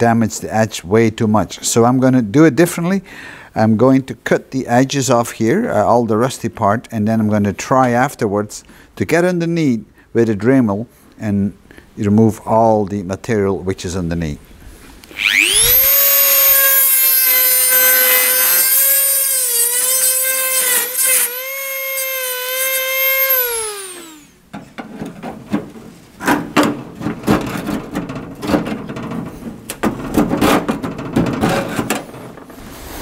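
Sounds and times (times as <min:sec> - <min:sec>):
rotary tool cutting metal: 0:15.1 - 0:24.4
metal scraping and knocking: 0:24.5 - 0:32.6.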